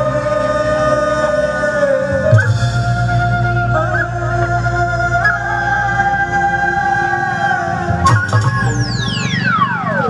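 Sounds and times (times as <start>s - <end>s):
sliding melody tones: 2.0s - 10.0s.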